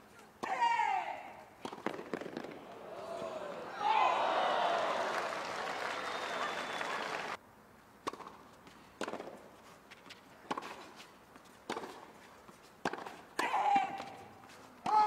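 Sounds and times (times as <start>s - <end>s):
tennis ball struck by rackets: 1.6s - 3.4s, 8.0s - 8.4s, 9.0s - 9.4s, 11.7s - 12.1s, 12.8s - 14.2s.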